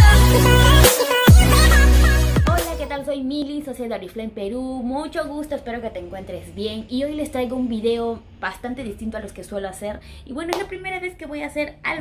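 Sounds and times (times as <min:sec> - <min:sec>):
electronic music with heavy bass: 0:00.0 - 0:02.9.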